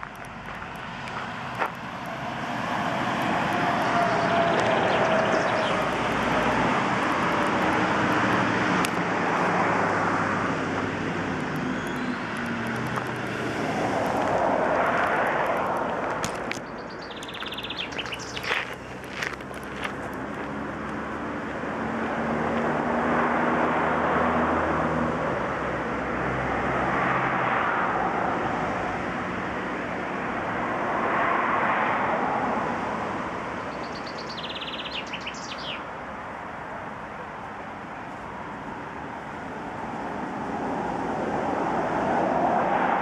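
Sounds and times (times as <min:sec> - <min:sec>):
low engine hum: 0:00.0 - 0:29.0
vehicles passing: 0:00.0 - 0:43.0
bird chirping: 0:04.0 - 0:06.4, 0:11.6 - 0:13.0, 0:16.6 - 0:19.1, 0:33.6 - 0:35.8.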